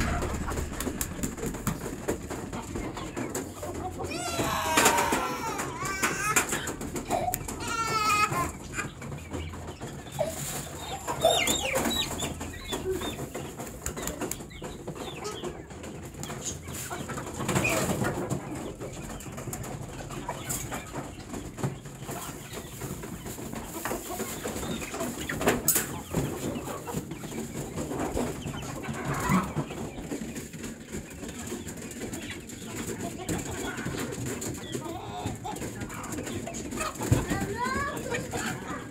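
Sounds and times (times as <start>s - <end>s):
sharp knock: 0.0s - 2.2s
chickens clucking and chirping: 0.0s - 38.9s.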